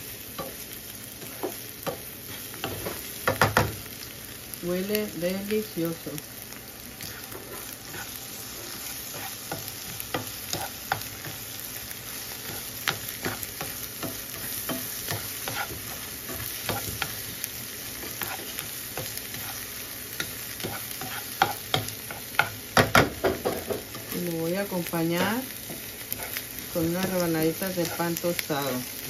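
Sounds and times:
eggs sizzling in frying pan: 0:00.0 - 0:29.0
spatula scraping pan: 0:07.0 - 0:11.4, 0:12.4 - 0:17.3, 0:17.9 - 0:22.5.

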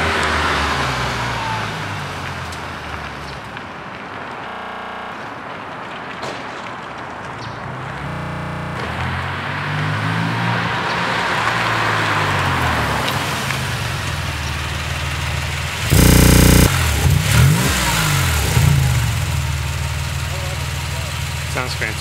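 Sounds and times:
engine revving: 0:07.7 - 0:10.7, 0:15.7 - 0:22.0
loud exhaust burst: 0:15.8 - 0:20.1.

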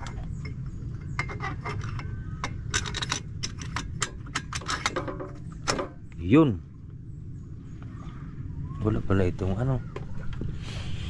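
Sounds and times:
metal tools clinking: 0:00.0 - 0:06.0
steady low rumble: 0:00.0 - 0:11.0.

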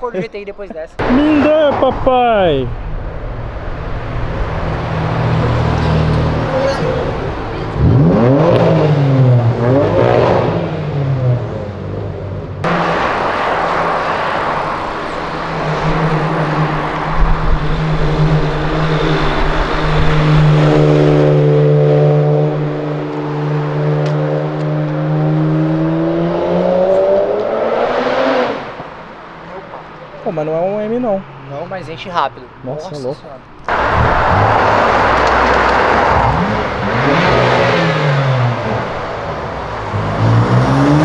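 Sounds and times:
car engine revving: 0:01.0 - 0:41.0
car accelerating past: 0:12.6 - 0:29.0, 0:33.7 - 0:41.0.

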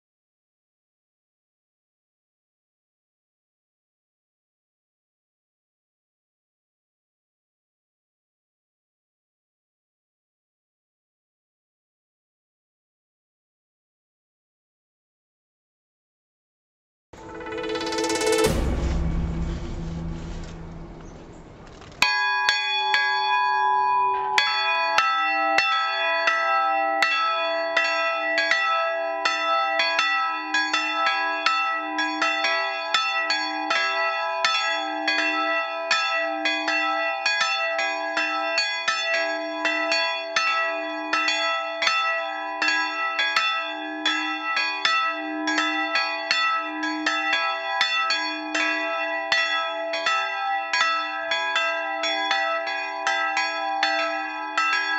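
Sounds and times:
church bells ringing: 0:20.0 - 0:54.9.

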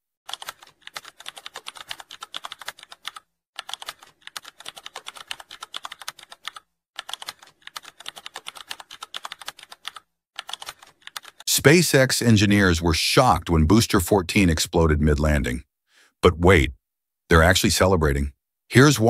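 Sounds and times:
keyboard typing: 0:00.3 - 0:11.4.

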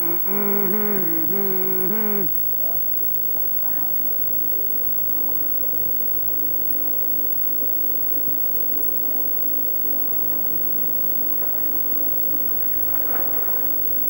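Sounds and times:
rough background wash: 0:00.0 - 0:02.3
steady low hum: 0:00.0 - 0:02.3.

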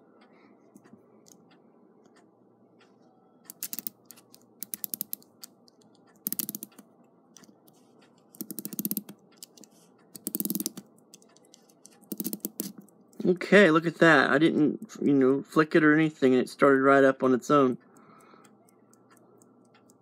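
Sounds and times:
clock winding ratchet clicks: 0:03.4 - 0:06.8, 0:07.4 - 0:13.4.

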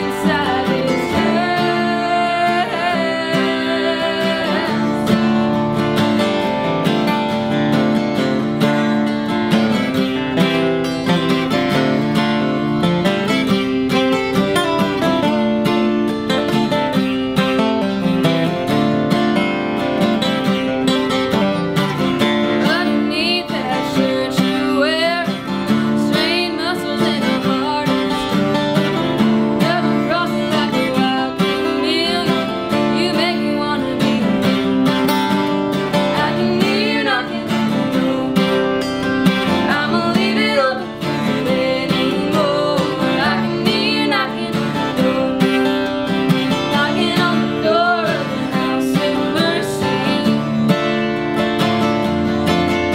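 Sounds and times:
woman singing: 0:00.0 - 0:06.3, 0:22.2 - 0:51.0
acoustic guitars playing: 0:00.0 - 0:52.9.

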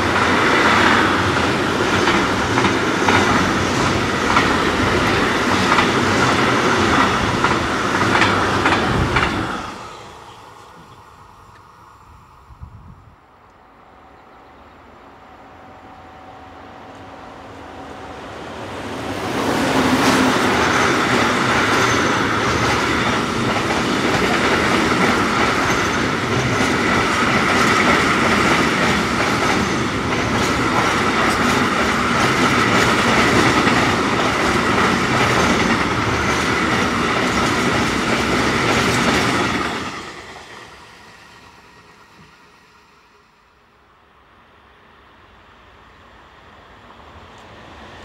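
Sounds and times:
wheels clacking over rails: 0:00.0 - 0:09.8, 0:19.7 - 0:40.2
freight train passing: 0:00.0 - 0:48.0.

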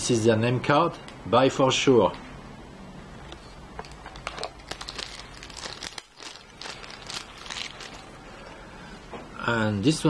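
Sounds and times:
plastic wrapping crinkling: 0:03.8 - 0:08.6.

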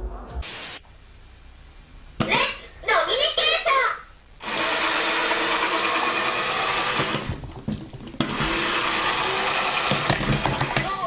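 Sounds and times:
small geared motor whirring: 0:08.3 - 0:10.6.

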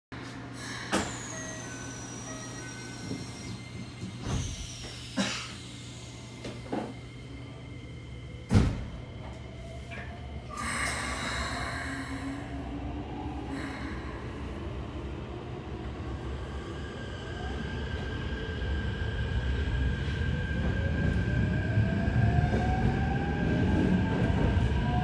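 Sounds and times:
train drive hiss and whine: 0:00.2 - 0:14.6.

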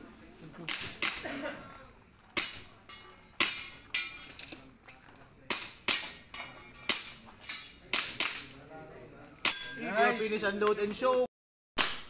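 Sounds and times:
airsoft pistol shots: 0:11.8 - 0:12.0.

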